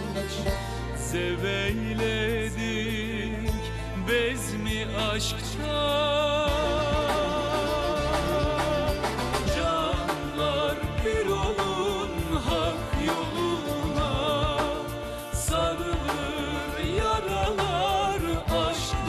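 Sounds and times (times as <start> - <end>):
man singing folk song: 0.0 - 19.0
band with steady drum beat: 5.9 - 19.0.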